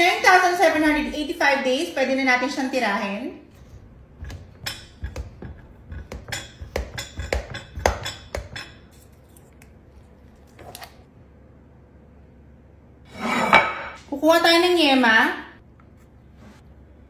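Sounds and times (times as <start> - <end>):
metal spatula sliding: 13.1 - 14.0.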